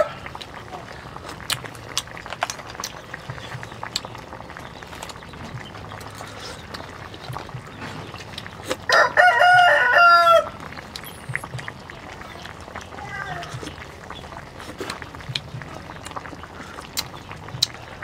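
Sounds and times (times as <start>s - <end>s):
rooster crowing: 8.9s - 10.6s.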